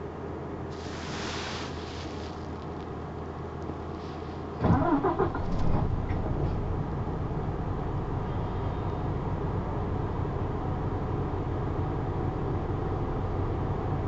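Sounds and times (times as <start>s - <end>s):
air hiss: 0.7s - 2.7s
diesel bus engine starting and idling: 1.8s - 14.0s.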